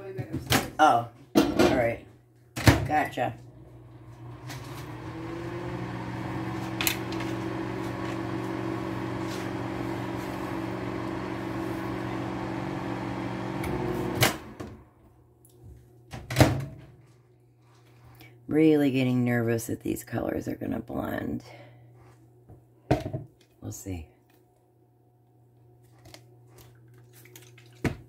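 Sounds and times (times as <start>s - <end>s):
microwave oven humming: 3.0s - 16.9s.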